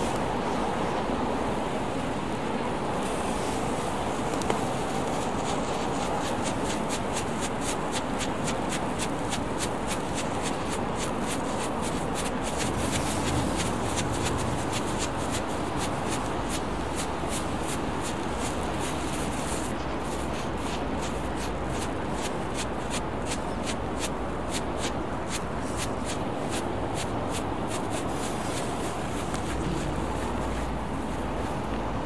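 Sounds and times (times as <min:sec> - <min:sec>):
wind and water noise: 0:00.0 - 0:32.0
ground firework crackling: 0:04.2 - 0:31.3.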